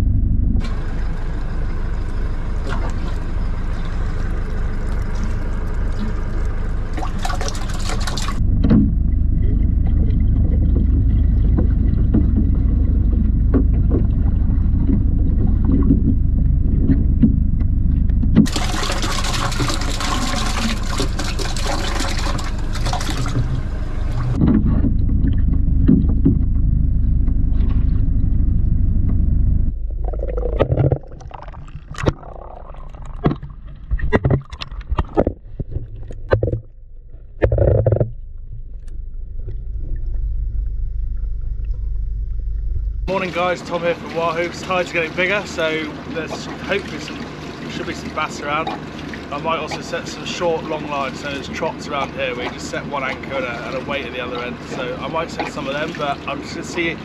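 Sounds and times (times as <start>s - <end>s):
engine running: 0.0s - 57.0s
rushing wind and water: 43.1s - 57.0s.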